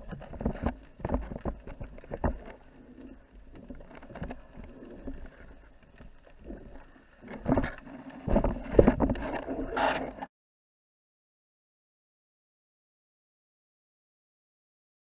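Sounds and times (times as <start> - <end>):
clicks underwater: 0.0 - 10.3
underwater water movement: 0.0 - 10.3.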